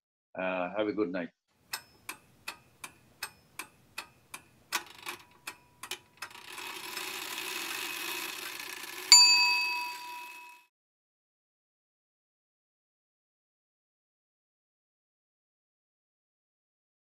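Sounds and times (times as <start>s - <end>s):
clock ticking: 1.7s - 6.9s
bell-like ding: 9.1s - 10.7s.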